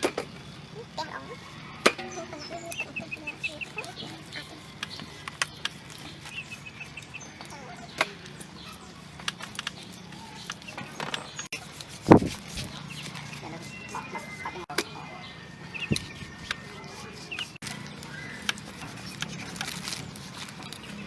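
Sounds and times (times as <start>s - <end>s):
snapping stems of greens: 17.4s - 21.0s.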